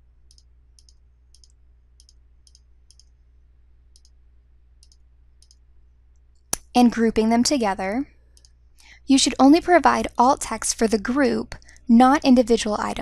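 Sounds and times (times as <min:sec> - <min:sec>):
low steady hum: 0:00.0 - 0:13.0
computer mouse clicks: 0:00.3 - 0:03.2, 0:03.9 - 0:04.2, 0:04.8 - 0:05.6, 0:08.3 - 0:08.6.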